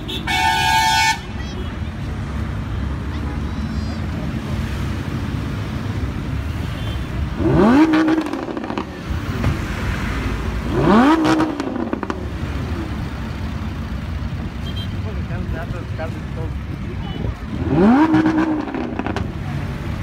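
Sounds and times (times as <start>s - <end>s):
car engine revving: 7.2s - 13.7s, 17.4s - 20.0s
exhaust crackles: 17.4s - 19.4s.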